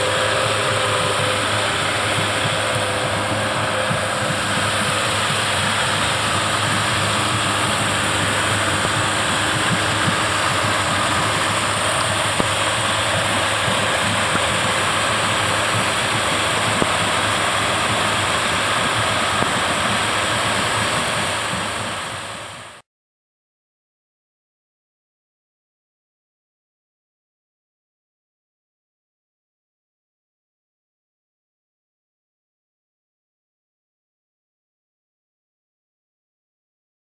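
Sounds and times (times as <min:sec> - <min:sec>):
outboard engines running: 0:00.0 - 0:22.8
rushing hiss: 0:00.0 - 0:22.8.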